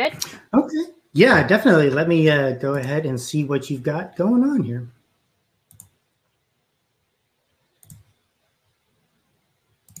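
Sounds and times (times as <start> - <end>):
computer mouse clicks: 5.7 - 6.0, 7.8 - 8.2.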